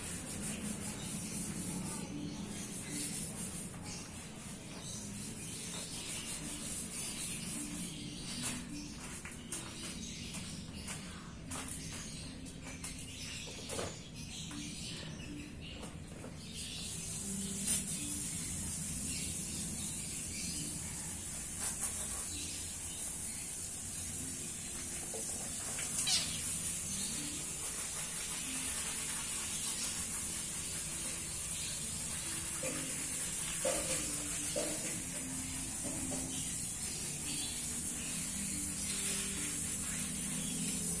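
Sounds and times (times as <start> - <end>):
kittens play-fighting: 25.8 - 26.5
faint squeak: 25.8 - 26.6.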